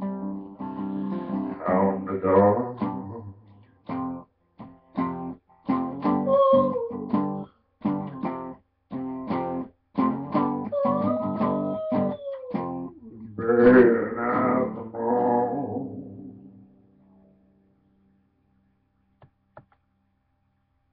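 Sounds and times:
acoustic guitar strummed chords: 0.0 - 6.4, 7.0 - 11.7, 12.6 - 17.3
wavering wordless vocal: 1.5 - 3.5, 6.2 - 7.0, 10.7 - 16.7
wordless voice sliding tone: 1.5 - 3.5, 10.7 - 16.8.

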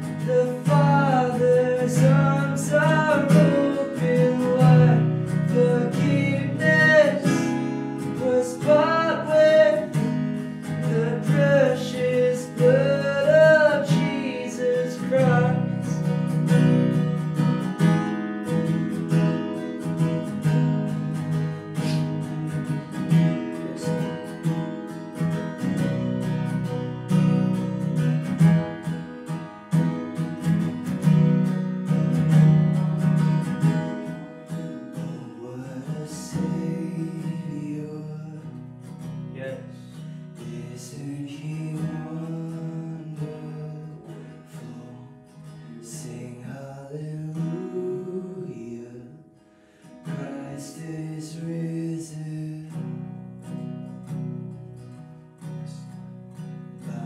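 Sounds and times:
man singing softly: 0.0 - 16.2, 34.9 - 38.6, 39.4 - 49.3, 50.0 - 52.9
acoustic guitar strummed: 0.0 - 57.0.

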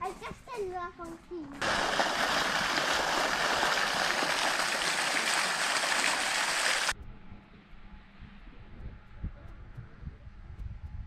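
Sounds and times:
fountain water splashing into basin: 1.6 - 6.9.

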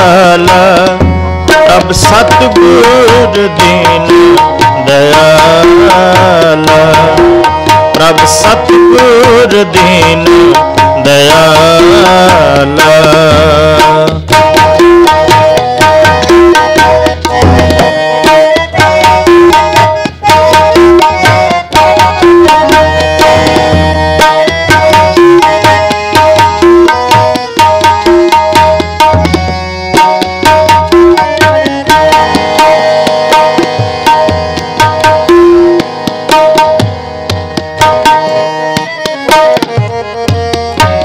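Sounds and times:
tabla drumming: 0.0 - 41.0
harmonium sustained notes: 13.6 - 41.0.

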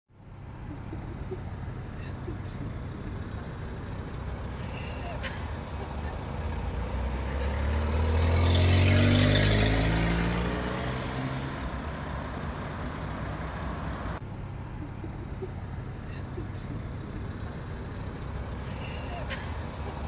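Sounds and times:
low engine rumble: 0.1 - 8.3, 11.4 - 20.0
vehicle passing close by: 5.6 - 14.8.

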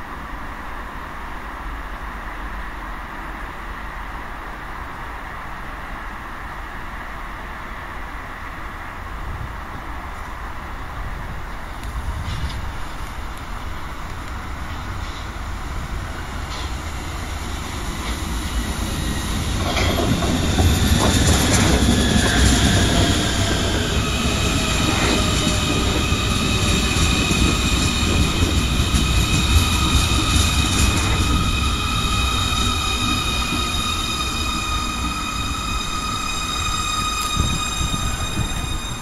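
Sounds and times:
subway train wheels rumbling: 0.0 - 39.0
high whining tones: 18.9 - 39.0.

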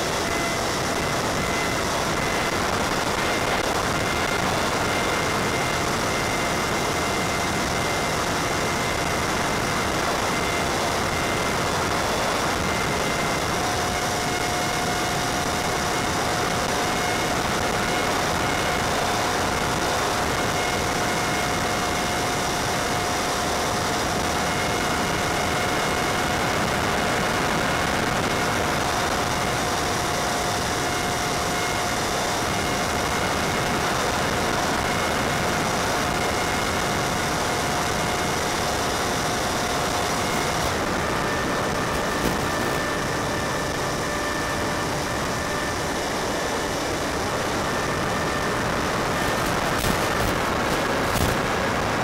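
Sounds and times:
electric motor and propeller whine: 0.0 - 52.0.

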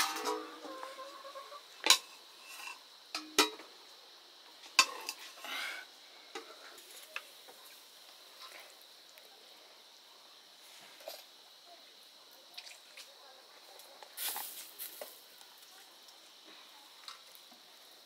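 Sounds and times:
dishes and utensils clinking: 0.0 - 0.6.

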